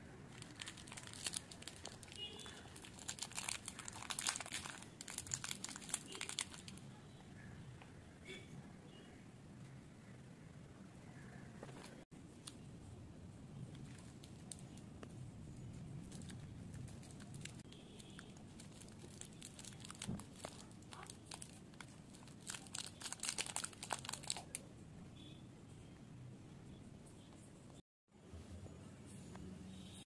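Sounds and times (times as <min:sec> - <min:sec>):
plastic candy wrappers crinkling: 0:00.3 - 0:06.8, 0:13.8 - 0:14.8, 0:15.9 - 0:24.6
wrapper tearing: 0:00.3 - 0:06.8, 0:18.2 - 0:24.6.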